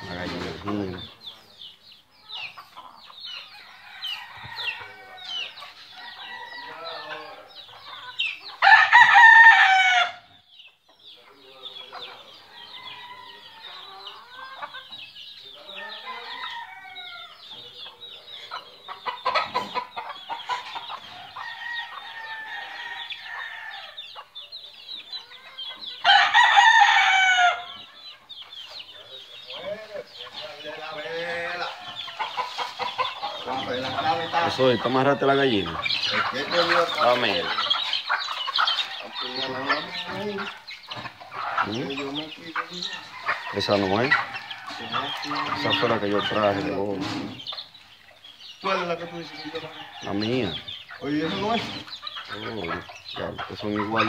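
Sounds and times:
hens clucking and chicks cheeping: 0.0 - 54.0
rooster crowing: 3.6 - 7.4, 8.6 - 10.3, 15.7 - 17.5, 21.1 - 24.0, 26.0 - 27.8, 42.7 - 46.2, 48.8 - 50.6.

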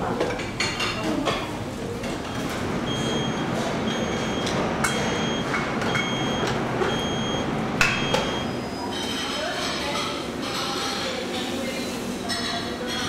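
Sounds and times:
steady machine hum: 1.6 - 8.9
short high electronic beeps: 2.9 - 8.7.

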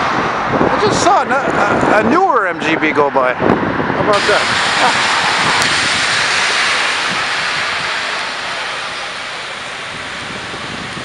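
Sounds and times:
heavy rain on pavement: 4.1 - 11.0.

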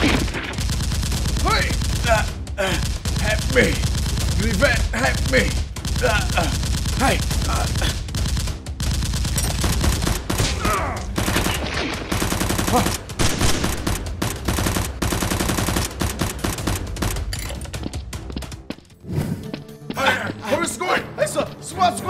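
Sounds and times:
rapid automatic gunfire effects: 0.0 - 17.2.

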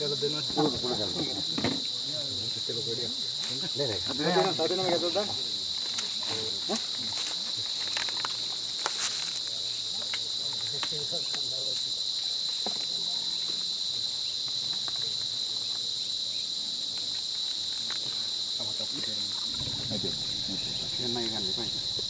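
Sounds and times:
forest insects chorus: 0.0 - 22.0.

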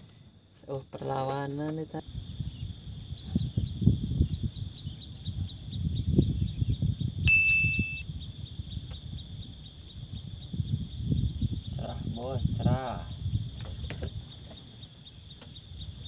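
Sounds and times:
high insect chorus: 0.0 - 16.0
bell-like ding: 7.3 - 8.0.

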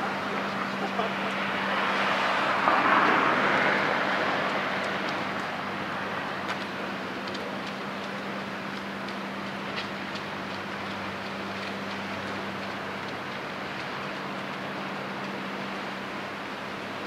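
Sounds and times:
steady low hum: 0.0 - 17.0
vehicle rushing past: 1.0 - 6.4.

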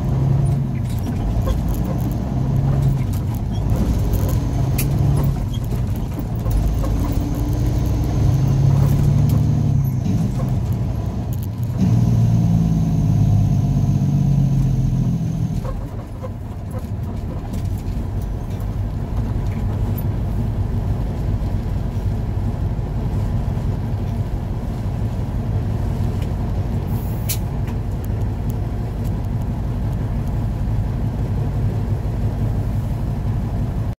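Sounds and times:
truck engine pulling under load: 0.0 - 32.8.

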